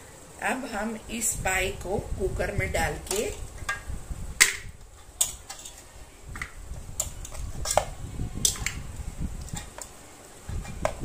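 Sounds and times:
bones knocking in metal pot: 3.0 - 11.0.

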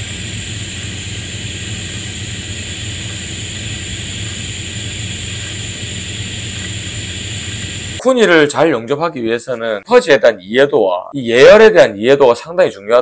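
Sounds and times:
low hum: 0.0 - 8.0
welding arc hissing: 0.0 - 8.0.

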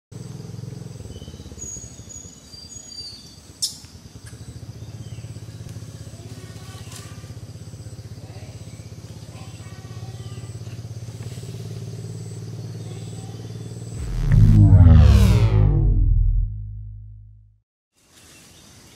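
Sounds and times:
sweeping whoosh: 14.0 - 17.5.

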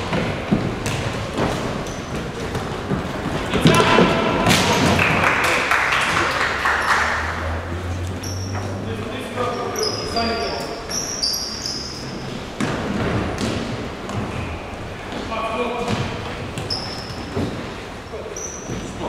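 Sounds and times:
ball kicks and thuds: 0.0 - 1.6, 12.6 - 14.3.

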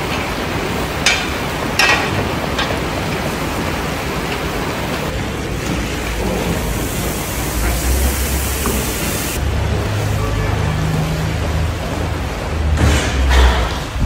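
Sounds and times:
cauldron boiling hard: 0.0 - 10.0.

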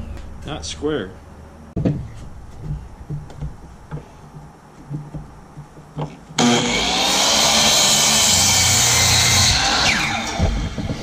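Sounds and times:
miter saw cutting wood: 6.4 - 11.0.

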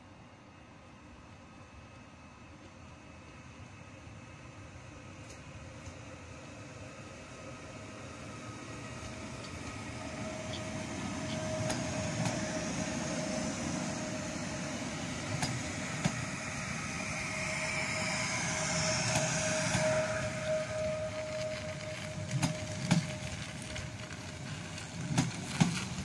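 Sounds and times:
train rumbling past: 0.0 - 26.0
traction motor whine: 9.6 - 25.2.

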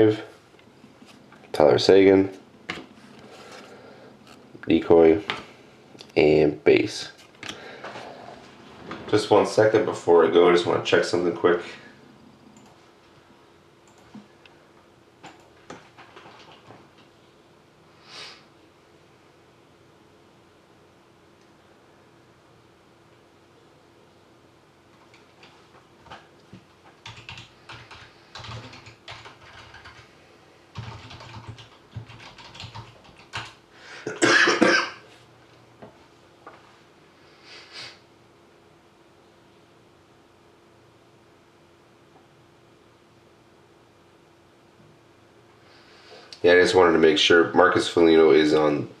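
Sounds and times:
faint steady hum: 0.0 - 49.0
keyboard typing: 15.2 - 16.8, 25.0 - 30.0, 30.7 - 33.6.

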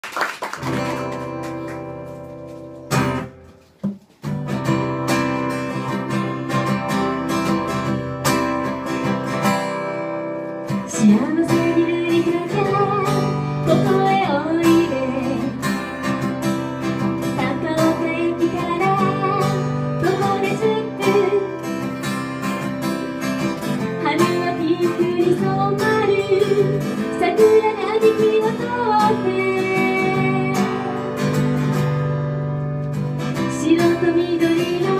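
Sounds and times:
acoustic guitar: 0.0 - 34.9
woman singing: 10.8 - 16.2, 17.2 - 21.9, 23.8 - 31.2, 33.3 - 34.9.

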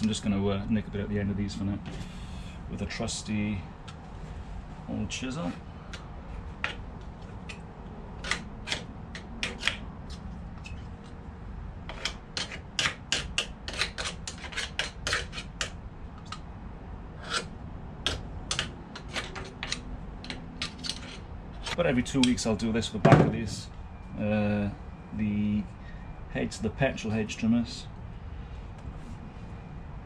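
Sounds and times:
chisel scraping grease: 8.2 - 11.2, 11.9 - 16.4, 17.2 - 21.8.

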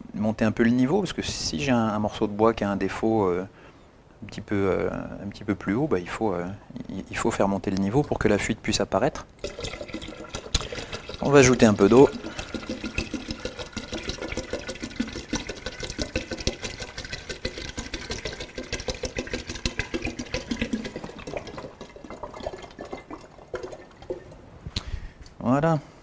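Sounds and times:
water glugging from a plastic bottle: 9.4 - 24.4.

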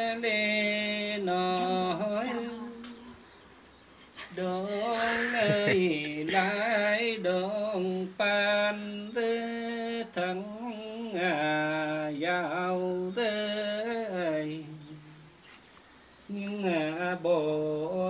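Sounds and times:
person singing unaccompanied: 0.0 - 18.0
singer breathing: 4.9 - 5.6.

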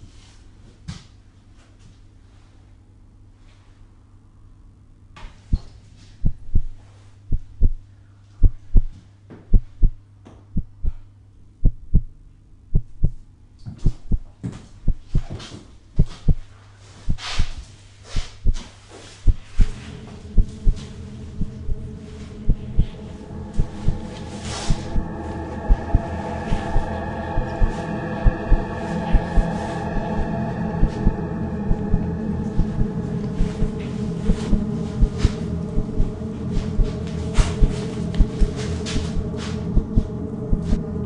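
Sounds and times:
low hum: 2.4 - 41.0
heartbeat double thumps: 5.5 - 8.9, 9.5 - 11.0, 11.6 - 12.1, 12.7 - 13.2, 13.8 - 15.4, 16.0 - 16.5, 18.2 - 18.6, 19.2 - 24.1, 24.7 - 40.9
throbbing drone with held tones: 18.3 - 41.0.

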